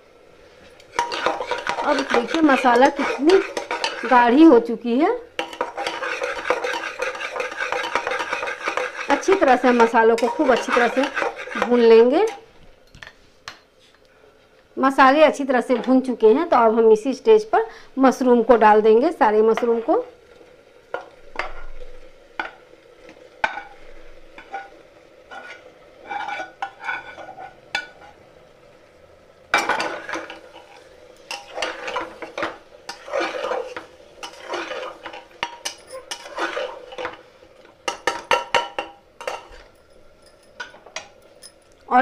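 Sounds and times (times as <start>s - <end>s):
metal spatula scraping pans: 0.9s - 4.6s, 5.4s - 12.5s, 23.4s - 28.2s, 29.6s - 37.2s, 37.9s - 39.7s.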